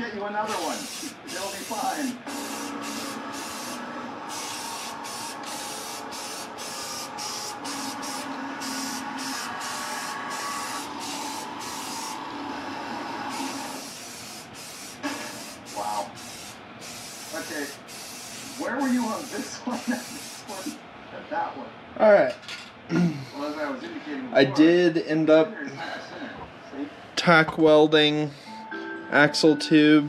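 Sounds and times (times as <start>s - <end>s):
spray paint can hissing: 0.5s - 12.2s, 13.3s - 20.8s.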